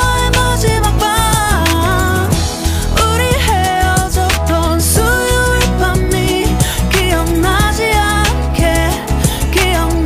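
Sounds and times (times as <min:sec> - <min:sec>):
pop song: 0:00.0 - 0:10.0.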